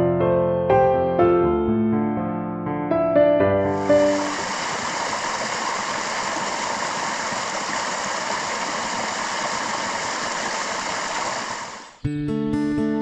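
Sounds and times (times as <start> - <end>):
waterfall splashing over rocks: 3.8 - 11.9.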